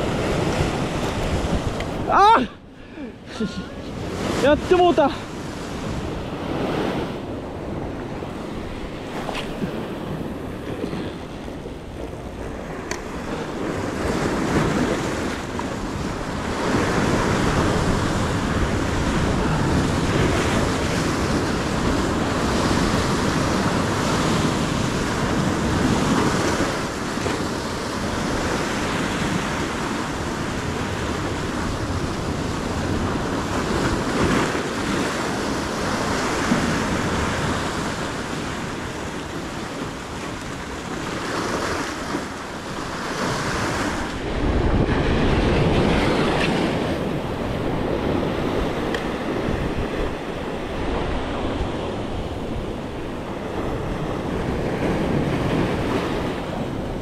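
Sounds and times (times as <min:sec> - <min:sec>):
surf washing on rocks: 0:00.0 - 0:57.0
wind buffeting microphone: 0:00.0 - 0:57.0.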